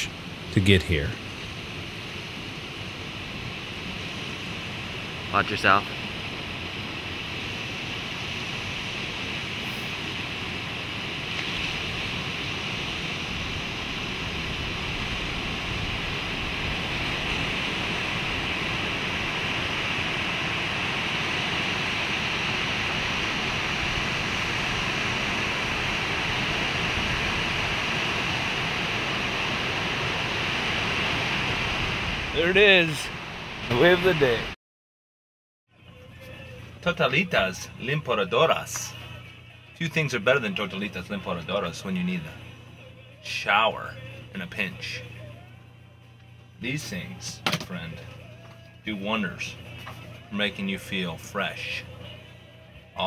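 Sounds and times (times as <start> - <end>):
ocean waves breaking on beach: 1.2 - 34.6.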